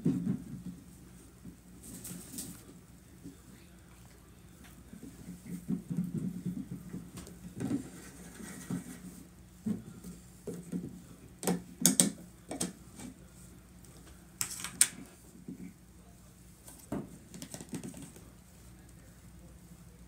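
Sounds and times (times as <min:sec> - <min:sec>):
hands tapping plastic tub: 0:10.5 - 0:12.8.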